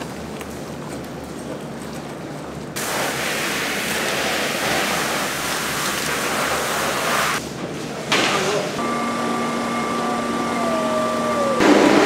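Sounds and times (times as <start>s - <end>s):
water spraying: 2.8s - 7.4s
low machine hum: 8.8s - 12.0s.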